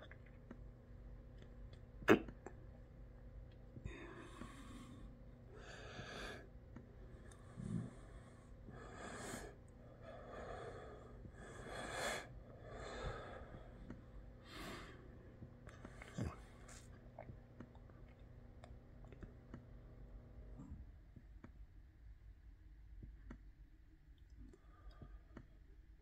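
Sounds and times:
person breathing close: 0:03.8 - 0:15.2.

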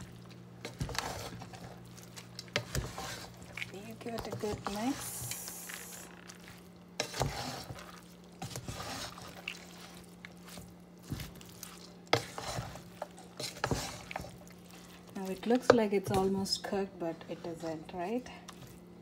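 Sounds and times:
steady low hum: 0:00.0 - 0:19.0
spoon scraping cooking pot: 0:02.5 - 0:06.1, 0:07.0 - 0:09.8, 0:12.1 - 0:17.9.

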